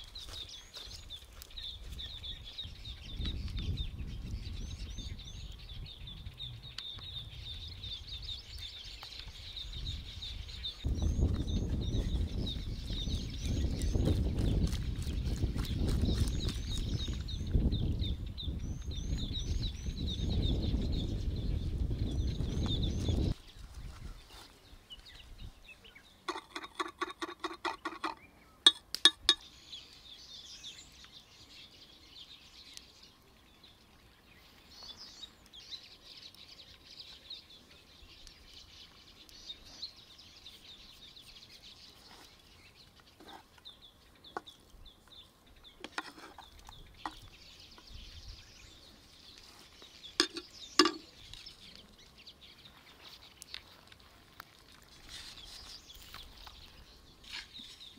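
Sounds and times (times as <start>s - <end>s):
birds chirping: 0.0s - 57.9s.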